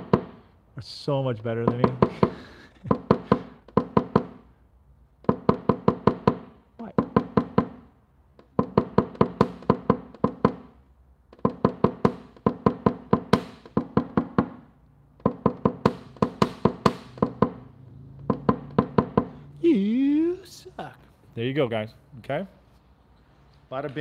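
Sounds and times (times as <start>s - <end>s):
tool tapping on car panel: 0.0s - 0.4s, 1.6s - 4.4s, 5.2s - 17.6s, 18.2s - 19.3s.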